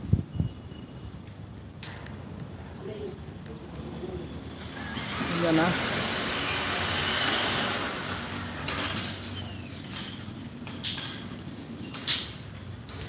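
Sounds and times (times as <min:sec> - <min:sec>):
steady outdoor hiss: 0:00.0 - 0:13.0.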